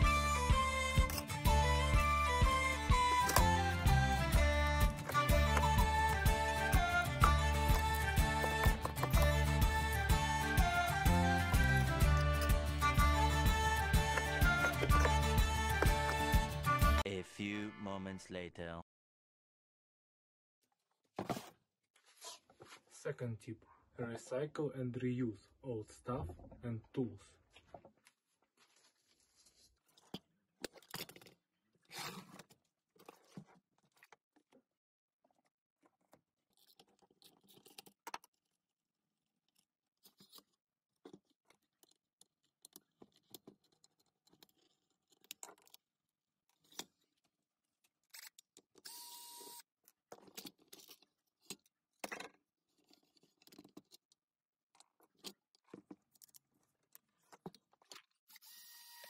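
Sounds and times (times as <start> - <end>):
tools and metal parts clicking: 41.2 - 45.8.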